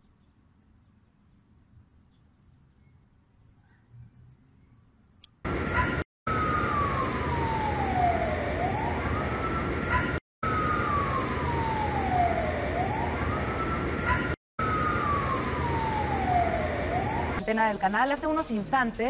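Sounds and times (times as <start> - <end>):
siren wailing: 5.4 - 17.6.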